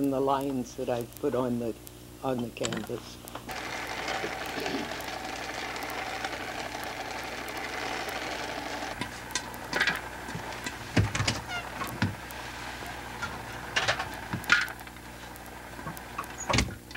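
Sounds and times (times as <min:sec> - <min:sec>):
popcorn popper sizzling hiss: 0:00.0 - 0:16.9
sharp clicks and knocks: 0:02.4 - 0:12.4, 0:13.2 - 0:16.9
faint ticks: 0:08.9 - 0:16.9.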